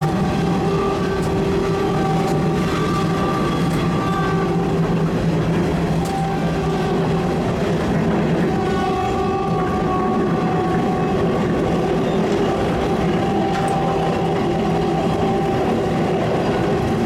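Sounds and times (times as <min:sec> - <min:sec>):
train engine and wheels rumbling: 0:00.0 - 0:17.0
train horn: 0:00.0 - 0:17.0
wheels clicking over rail joints: 0:00.0 - 0:17.0.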